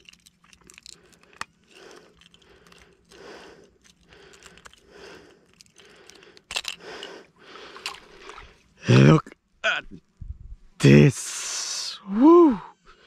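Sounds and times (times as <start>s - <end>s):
soft handling sounds: 0.0s - 8.8s.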